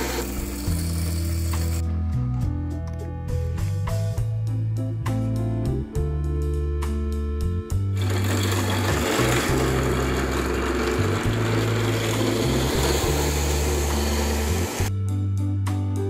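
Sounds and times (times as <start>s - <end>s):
ice-shaving machine grinding ice: 0.0s - 1.8s, 8.0s - 14.9s
music with steady bass line: 1.7s - 8.1s, 14.8s - 16.0s.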